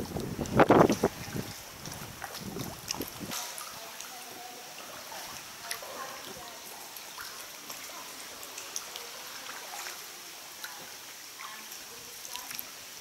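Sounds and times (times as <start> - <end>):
sea water trickling and lapping: 0.0 - 13.0
water drips and splashes: 0.0 - 13.0
steady hiss: 3.1 - 13.0.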